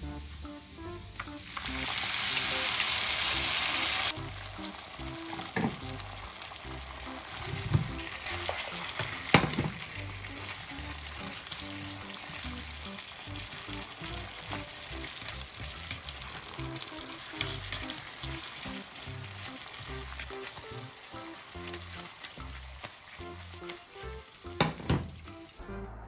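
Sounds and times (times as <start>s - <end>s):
chicken wings sizzling in sauce: 0.0s - 25.7s
chopsticks clicking against pan: 21.6s - 23.0s, 23.6s - 23.9s.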